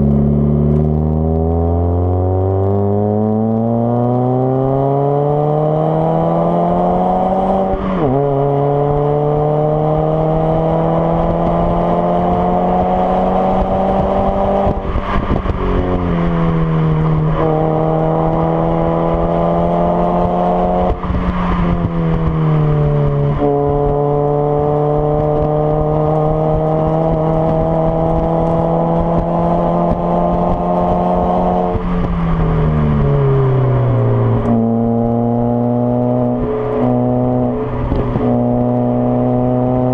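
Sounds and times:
car engine accelerating: 0.0 - 39.9.

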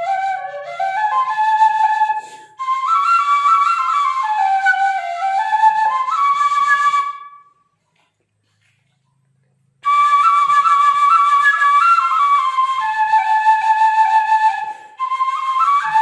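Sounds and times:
bamboo flute slow melody: 0.0 - 7.9, 9.8 - 16.0
short breath: 2.1 - 2.6, 14.6 - 15.0.

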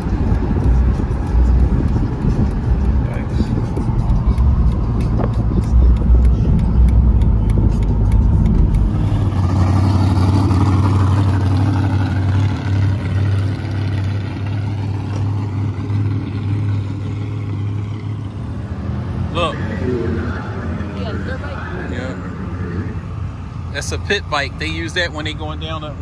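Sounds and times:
low engine hum: 0.0 - 26.0
road rumble inside car: 0.0 - 26.0
light ticks: 0.1 - 3.0, 3.6 - 9.1.

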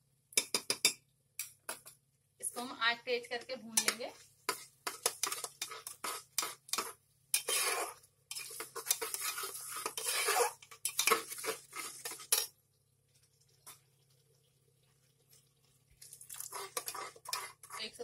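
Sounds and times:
metal spatula scraping a pot: 3.8 - 12.5, 16.3 - 18.0.

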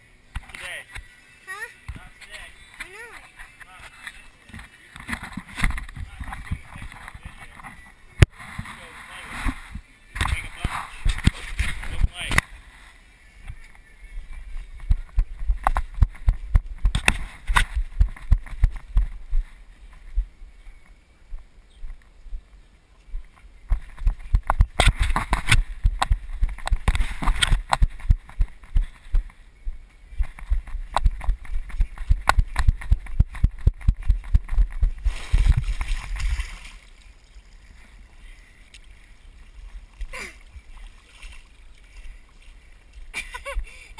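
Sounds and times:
running footsteps: 14.5 - 20.3, 23.2 - 36.4.

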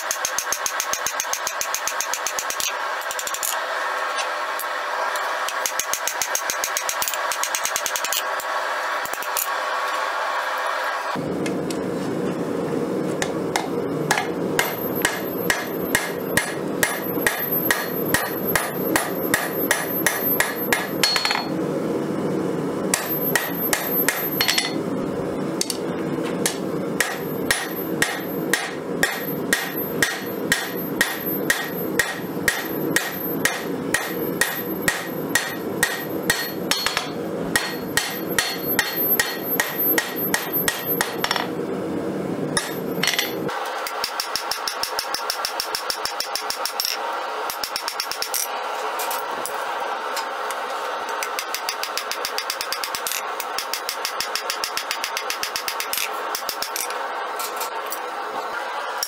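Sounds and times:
hammer striking metal on anvil: 0.0 - 3.5, 13.6 - 21.5, 22.9 - 24.8, 26.4 - 41.5, 42.6 - 48.5, 51.3 - 56.9.

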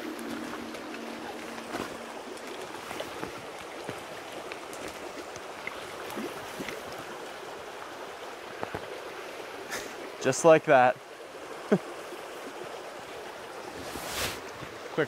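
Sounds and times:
stream running over rocks: 0.0 - 15.0
faint splashes in water: 0.1 - 7.5.

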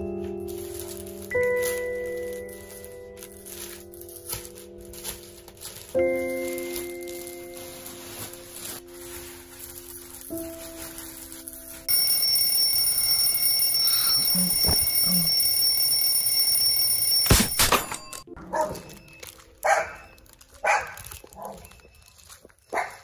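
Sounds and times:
alarm clock ringing: 11.8 - 20.0
dog barking: 18.4 - 18.9, 19.6 - 21.7, 22.7 - 23.0.

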